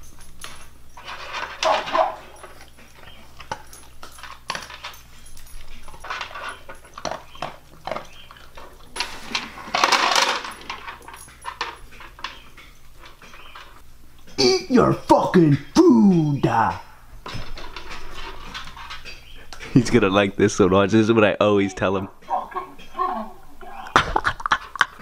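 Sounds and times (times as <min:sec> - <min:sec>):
kibble rattling against plastic: 0:00.0 - 0:13.8
dogs eating dry kibble: 0:00.0 - 0:14.4, 0:17.2 - 0:23.9.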